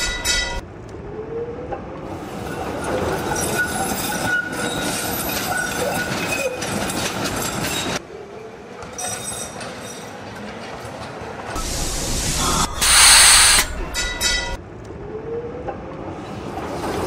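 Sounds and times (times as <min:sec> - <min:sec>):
tram rumbling on rails: 0:00.0 - 0:08.8, 0:09.4 - 0:17.0
faint wheel squeal: 0:02.4 - 0:06.8
rail-joint clicks: 0:12.8 - 0:14.6.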